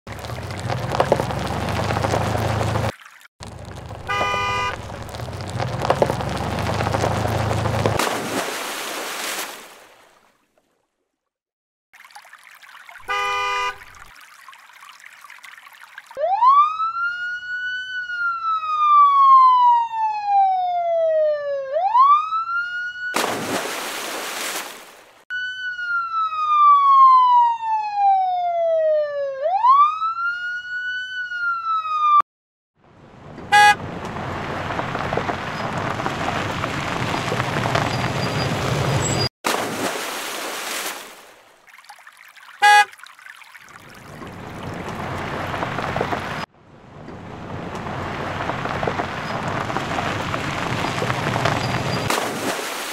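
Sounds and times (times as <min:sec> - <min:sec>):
short horn beeps: 0:04.0 - 0:04.8, 0:13.1 - 0:13.8, 0:33.5 - 0:33.8, 0:42.6 - 0:42.9
emergency vehicle siren wailing: 0:16.2 - 0:23.2, 0:25.3 - 0:32.2.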